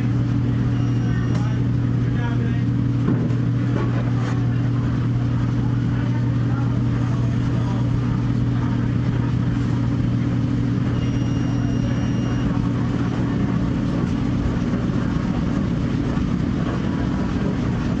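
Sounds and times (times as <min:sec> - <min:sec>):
low mechanical hum: 0:00.0 - 0:18.0
high steady tone: 0:00.6 - 0:01.6, 0:10.8 - 0:12.7.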